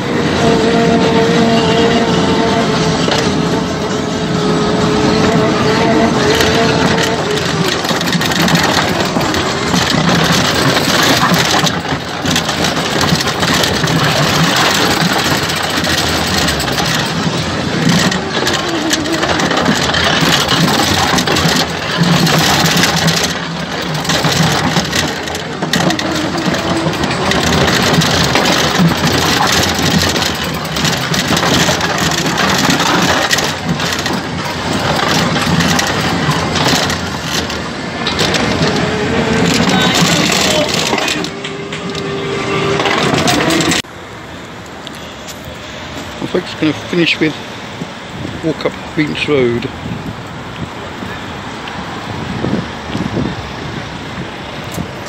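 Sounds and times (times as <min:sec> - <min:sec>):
ride car wheels rattling on rails: 0:00.0 - 0:55.0.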